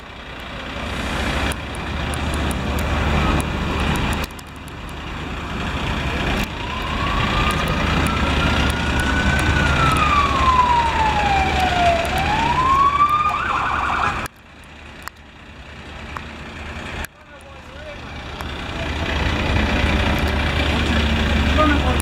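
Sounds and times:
road traffic noise: 0.0 - 22.0
police siren wailing and yelping: 6.4 - 14.3.

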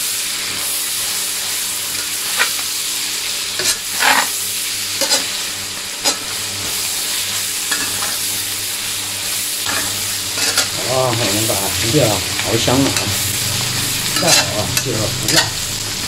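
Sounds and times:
food sizzling in a pan: 0.0 - 16.0
metal spatula scraping a pan: 3.5 - 5.4, 6.0 - 6.9, 7.6 - 8.3, 9.6 - 11.5, 12.7 - 15.6.

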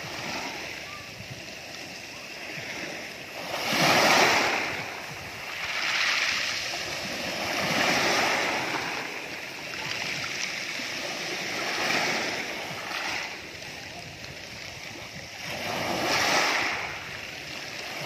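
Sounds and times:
waves washing over pebble beach: 0.0 - 18.0.

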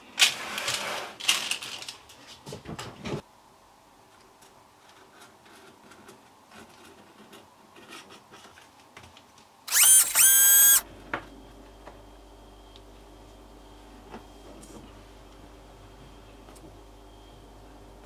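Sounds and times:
whirring whine: 9.7 - 10.9.

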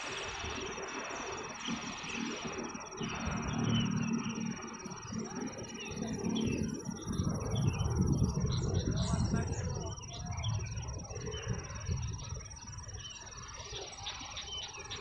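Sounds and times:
faint bird chirps: 0.0 - 15.0
pulsing insect trill: 0.0 - 15.0
low rumble: 3.0 - 12.4.

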